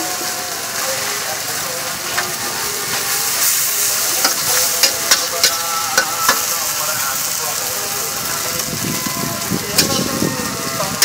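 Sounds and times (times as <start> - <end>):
food sizzling on griddle: 0.0 - 11.0.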